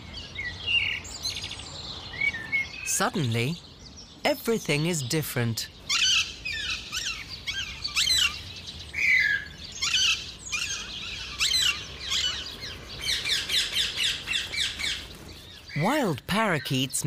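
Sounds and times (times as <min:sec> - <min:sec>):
parakeets screeching: 0:05.8 - 0:16.7.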